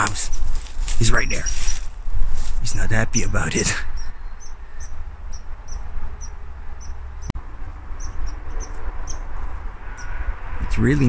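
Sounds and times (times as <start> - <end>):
squirrel chirping in alarm: 0.0 - 1.8, 3.1 - 7.3, 8.0 - 10.2.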